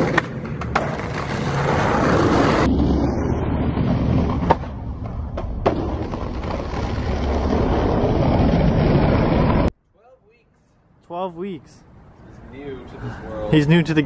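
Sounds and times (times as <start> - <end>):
skateboard clacking on ground: 0.0 - 1.5
skateboard wheels rolling on asphalt: 0.0 - 9.7.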